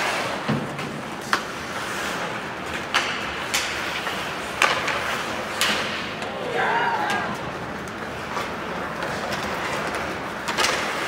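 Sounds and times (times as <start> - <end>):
skates hissing on ice: 0.0 - 0.5, 1.1 - 5.6
hockey sticks clacking on puck: 0.0 - 11.0.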